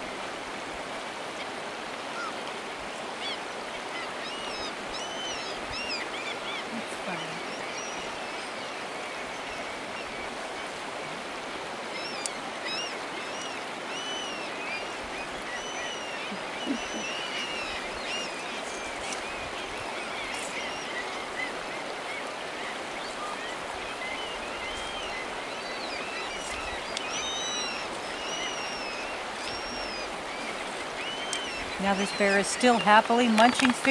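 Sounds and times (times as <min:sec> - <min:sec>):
shallow river over gravel: 0:00.0 - 0:33.9
birds chirping: 0:03.2 - 0:11.2, 0:11.8 - 0:33.9.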